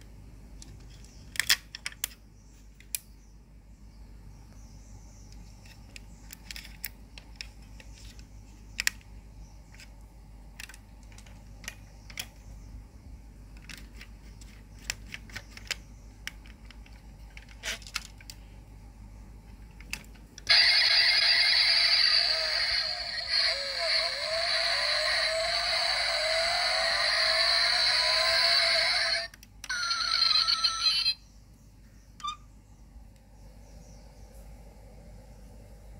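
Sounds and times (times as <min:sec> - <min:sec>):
small clicks of toy truck parts: 0:00.6 - 0:02.2, 0:05.3 - 0:09.1, 0:10.6 - 0:12.4, 0:13.5 - 0:18.4, 0:19.5 - 0:20.5.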